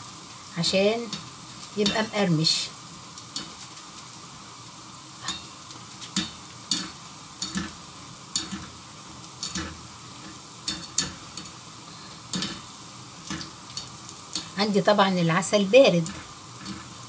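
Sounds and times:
dough deep-frying in oil: 0:00.0 - 0:17.0
skimmer clinking against pan: 0:09.4 - 0:11.6.

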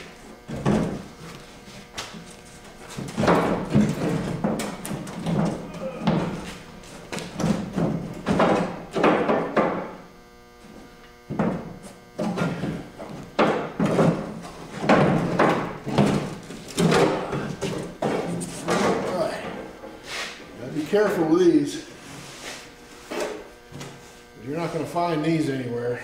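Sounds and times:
thumps knocks and scrapes: 0:00.4 - 0:10.0, 0:10.6 - 0:20.5.

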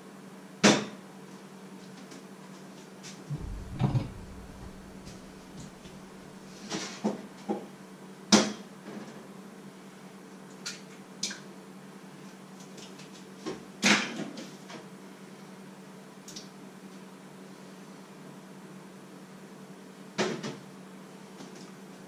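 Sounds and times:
steady low hum: 0:03.3 - 0:06.6.

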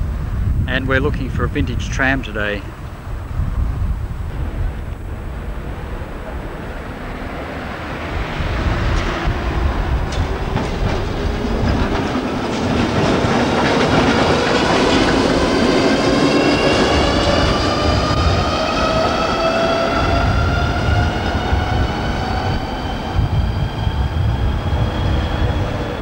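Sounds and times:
tram motor whine rising in pitch: 0:04.0 - 0:26.0
tram wheels clicking over rail joints: 0:08.6 - 0:19.8.

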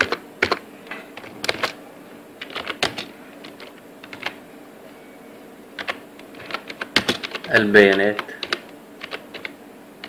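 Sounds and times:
computer keyboard typing: 0:00.0 - 0:00.6, 0:01.2 - 0:01.8, 0:02.4 - 0:04.4, 0:05.8 - 0:09.6.

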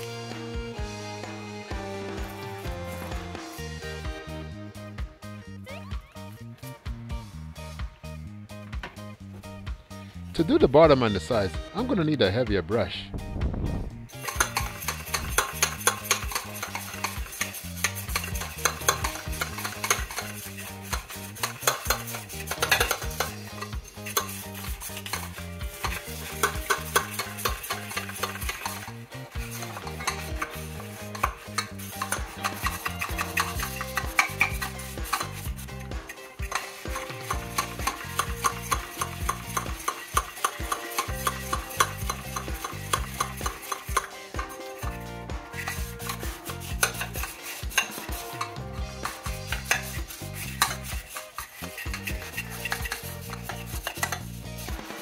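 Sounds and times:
brush scrubbing metal mug: 0:14.1 - 0:55.0.

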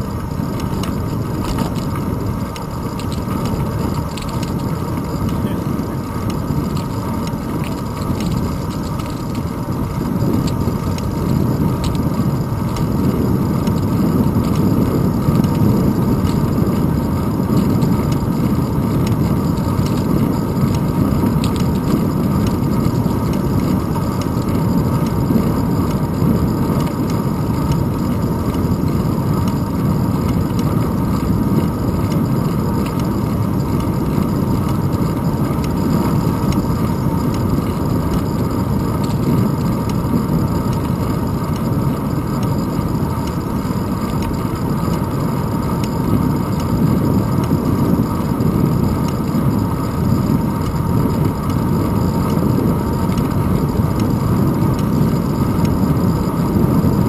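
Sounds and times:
bicycle tyre rumble on asphalt: 0:00.0 - 0:57.0.

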